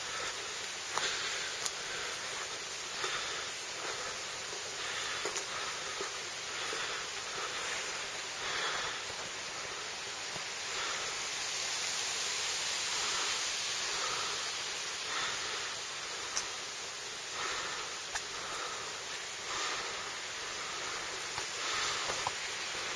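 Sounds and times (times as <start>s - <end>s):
footsteps on rough road: 0.0s - 11.0s, 17.3s - 22.9s
steady rushing hiss: 0.0s - 22.9s.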